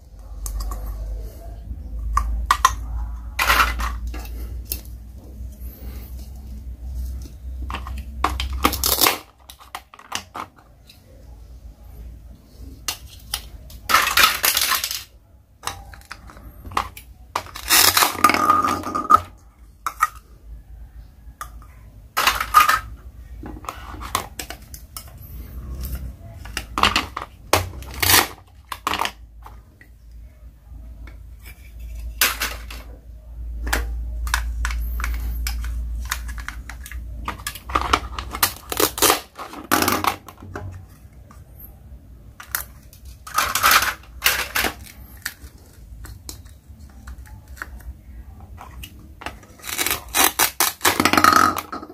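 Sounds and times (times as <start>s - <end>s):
plastic pieces clicking and knocking: 2.0s - 5.3s, 7.2s - 11.1s, 12.8s - 20.3s, 21.4s - 30.0s, 31.0s - 32.9s, 33.6s - 41.6s, 42.3s - 51.9s
plastic pieces tearing apart: 7.7s - 10.5s, 12.9s - 19.2s, 25.6s - 29.2s, 33.6s - 41.0s, 42.4s - 51.8s.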